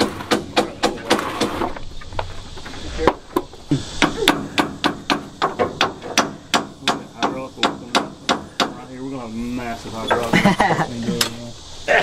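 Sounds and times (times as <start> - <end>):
rapid hammer blows on metal: 4.0 - 8.9.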